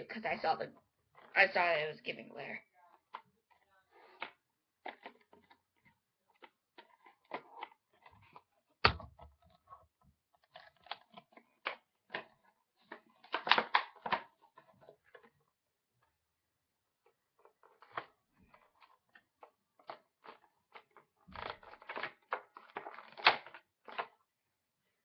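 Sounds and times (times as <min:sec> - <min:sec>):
packaging rustling and crinkling: 0:03.0 - 0:15.4, 0:17.0 - 0:24.2.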